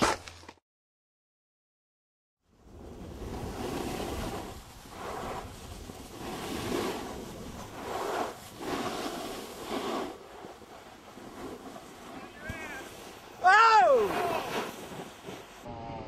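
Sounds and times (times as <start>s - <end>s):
snowboard edges scraping snow: 2.5s - 16.0s
wind rumbling on microphone: 2.5s - 16.0s.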